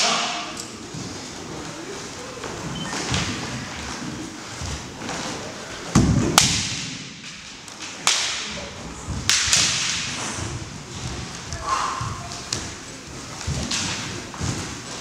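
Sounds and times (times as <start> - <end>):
bamboo swords cracking: 6.0 - 8.5, 9.2 - 10.2.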